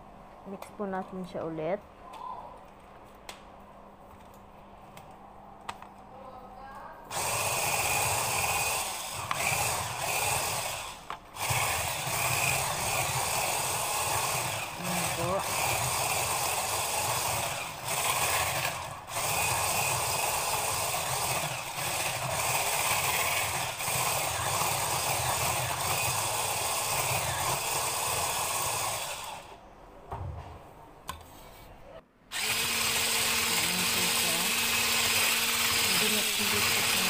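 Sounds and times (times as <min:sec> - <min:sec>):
electric hand mixer whirring: 0:07.1 - 0:29.5, 0:32.3 - 0:37.0.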